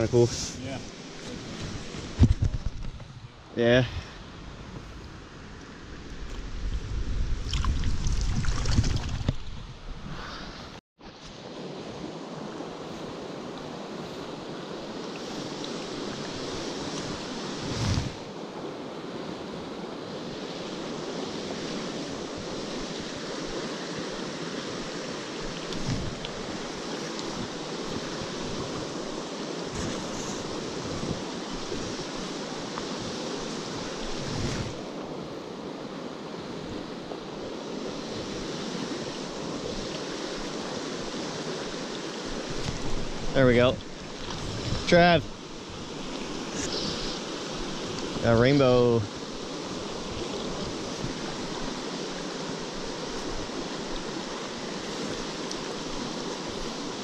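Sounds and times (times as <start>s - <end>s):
wind bumps on microphone: 0.0s - 5.2s, 6.0s - 10.8s, 15.3s - 18.4s, 25.4s - 34.9s, 37.8s - 48.3s, 49.0s - 56.9s
stream rushing over rocks: 36.8s - 57.0s.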